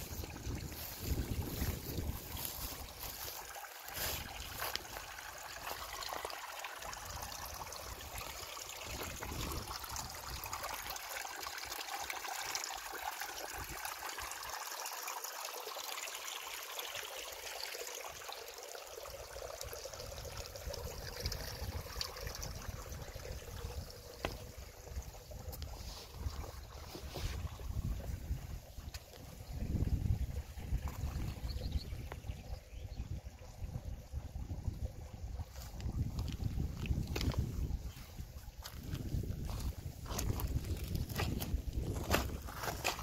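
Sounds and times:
wind rumbling on microphone: 0.0s - 5.8s, 7.0s - 10.7s, 20.0s - 43.0s
shallow water trickling over rocks: 0.0s - 43.0s.

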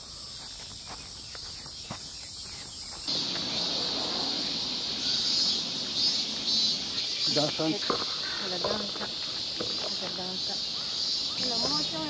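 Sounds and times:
soft footsteps in grass: 0.0s - 3.6s
shrill insect chorus: 0.0s - 12.0s.

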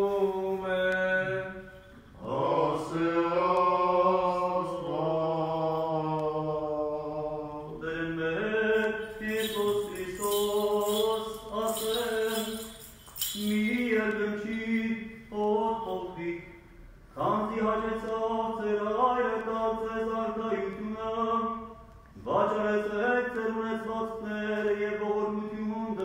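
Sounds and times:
man chanting: 6.3s - 16.6s.

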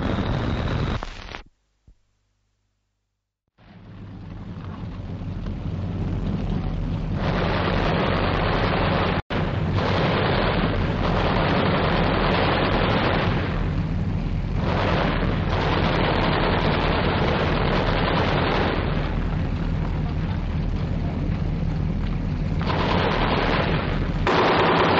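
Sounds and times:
low rumble of tanks: 0.0s - 1.4s, 3.5s - 24.9s
machine gun fire: 7.2s - 13.9s, 14.6s - 19.4s, 22.6s - 24.9s.

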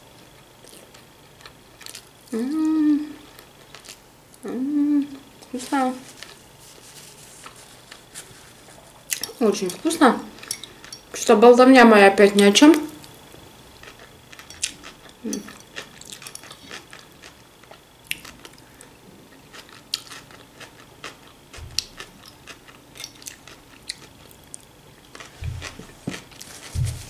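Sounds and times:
person chewing salad: 0.6s - 2.2s, 3.3s - 4.0s, 6.1s - 9.4s, 13.0s - 27.0s.

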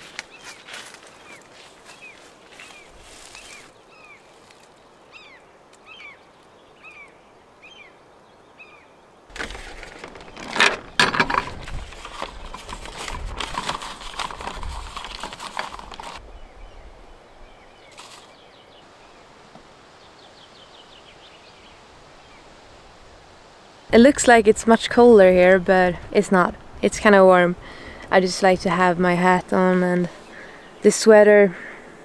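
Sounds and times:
bird chirping: 0.0s - 9.2s.

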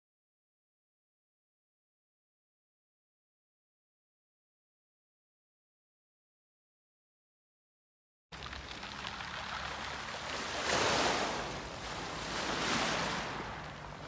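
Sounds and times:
waves washing over pebble beach: 8.4s - 14.0s.

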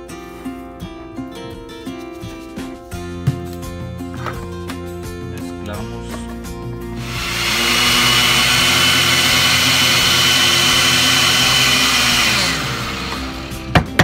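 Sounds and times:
blender running: 7.0s - 13.8s.

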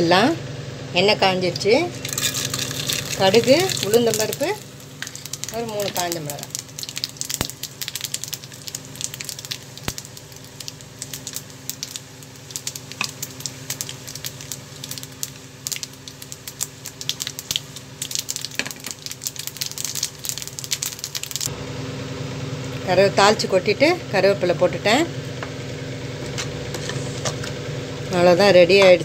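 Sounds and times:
hot oil sizzling in a frying pan: 2.0s - 21.5s
sharp pops and crackles: 2.1s - 21.5s.

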